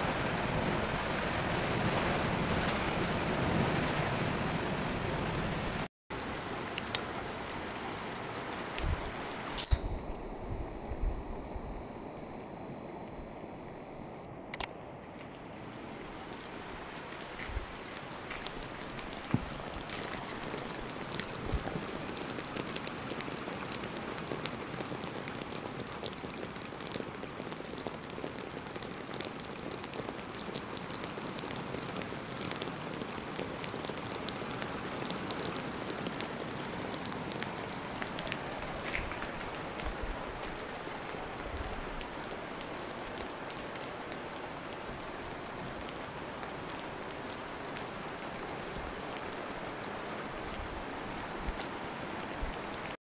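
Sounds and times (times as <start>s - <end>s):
steady rain falling: 0.0s - 53.0s
raindrops ticking: 6.2s - 10.2s, 14.2s - 44.8s.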